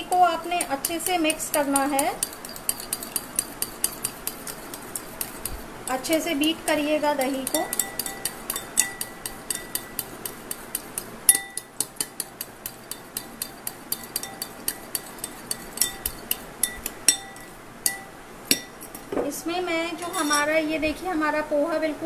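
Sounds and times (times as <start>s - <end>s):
metal spoon clinking on glass bowl: 0.5s - 5.5s, 7.3s - 19.0s, 20.0s - 20.5s.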